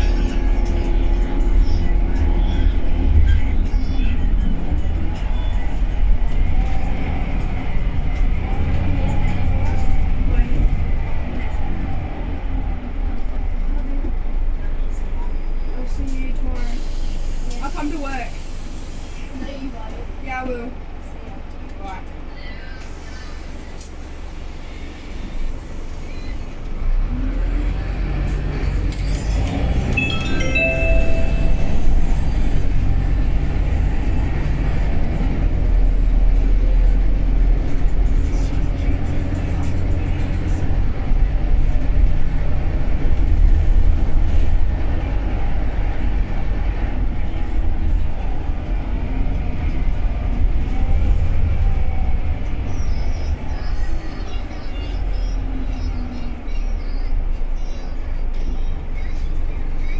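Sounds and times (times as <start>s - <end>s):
bus engine rumble: 0.0s - 59.9s
short tone: 30.0s - 32.4s.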